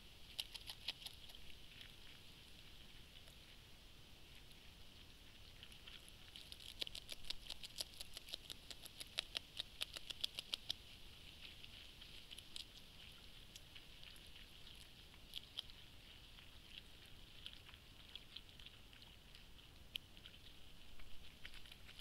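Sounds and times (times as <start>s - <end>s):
steady high hiss: 0.0s - 8.6s
beaver gnawing clicks: 0.2s - 3.4s, 5.3s - 22.0s.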